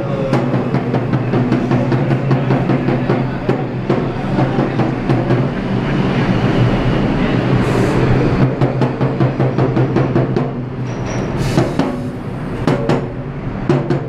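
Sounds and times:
marching drum beating: 0:00.0 - 0:05.8, 0:08.4 - 0:10.8, 0:11.6 - 0:14.0
subway train rumbling: 0:00.0 - 0:14.0.

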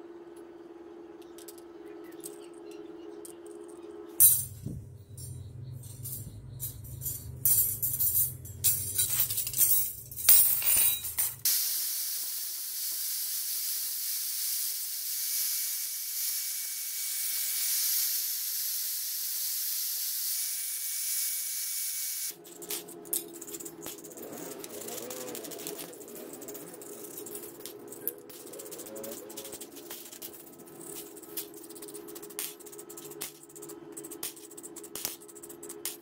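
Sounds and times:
metal skewers clinking: 0:03.2 - 0:11.4, 0:22.3 - 0:36.0
wire brush scraping metal: 0:22.3 - 0:35.5.

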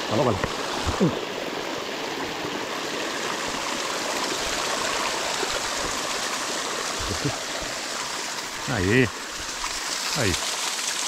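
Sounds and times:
waterfall and stream rushing: 0:00.0 - 0:11.0.

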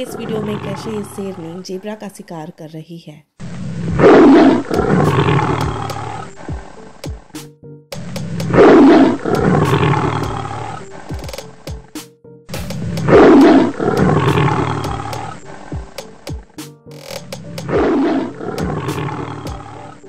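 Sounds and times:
background music: 0:00.0 - 0:02.7, 0:04.0 - 0:20.0
lion roaring: 0:03.4 - 0:06.4, 0:08.4 - 0:10.9, 0:13.1 - 0:15.4, 0:17.6 - 0:20.0.

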